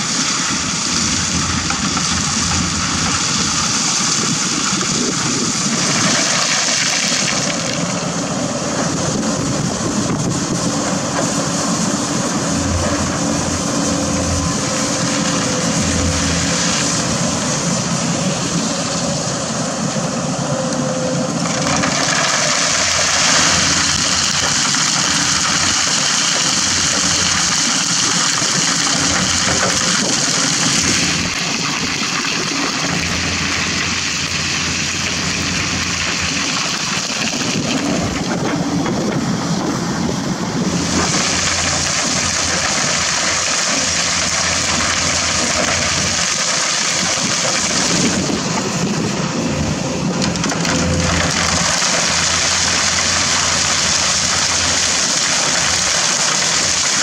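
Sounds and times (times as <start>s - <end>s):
diesel engines running: 0.0s - 57.0s
stones pouring into truck bed: 1.4s - 8.0s, 40.8s - 48.5s, 50.2s - 57.0s.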